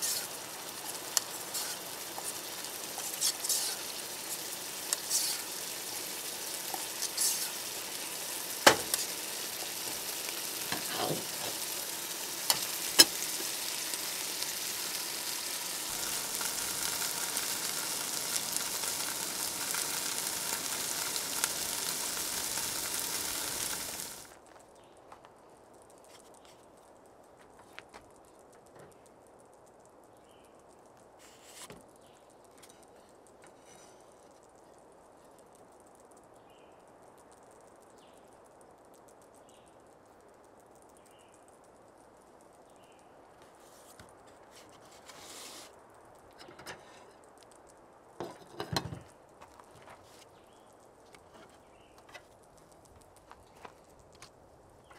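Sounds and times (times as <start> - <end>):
patties sizzling in frying pan: 0.0 - 24.4.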